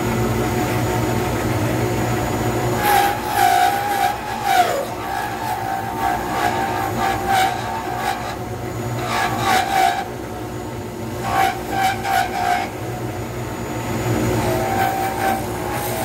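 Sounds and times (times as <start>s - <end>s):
wood lathe running: 2.6s - 16.0s
turning tool scraping: 2.7s - 10.4s, 11.1s - 12.9s, 14.3s - 16.0s.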